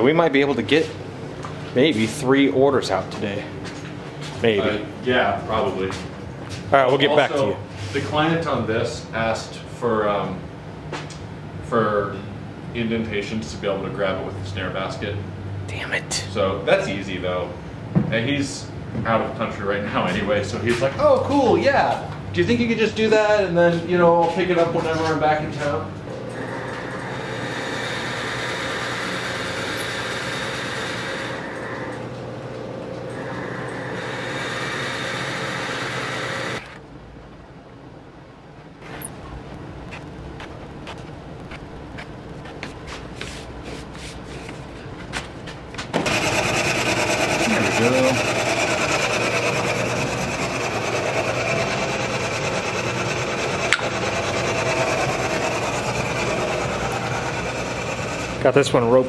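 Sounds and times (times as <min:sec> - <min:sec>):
metal lathe cutting: 0:26.4 - 0:31.9, 0:33.2 - 0:36.6, 0:46.0 - 0:58.9.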